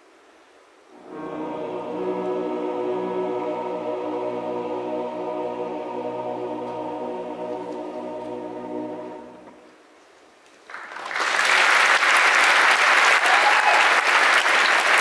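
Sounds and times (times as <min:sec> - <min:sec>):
men's chorus holding a chord: 0:01.0 - 0:09.6
audience applauding: 0:10.6 - 0:15.0.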